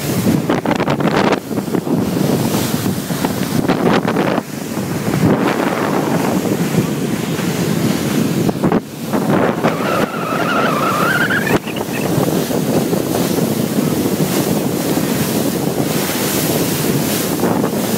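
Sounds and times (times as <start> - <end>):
water rushing past boat hull: 0.0 - 17.9
wind buffeting microphone: 0.0 - 17.9
rising tone: 9.9 - 12.1.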